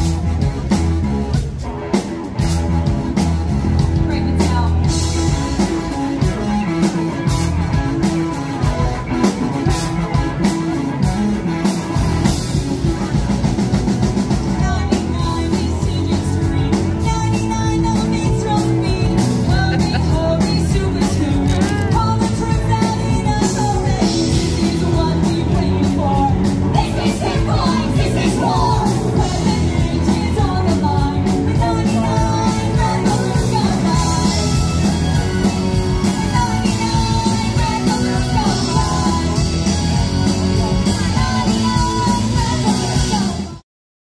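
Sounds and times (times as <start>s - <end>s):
drum kit beat: 0.0s - 43.6s
electric guitar: 0.0s - 43.6s
rock band playing: 0.0s - 43.6s
person singing: 14.3s - 43.6s.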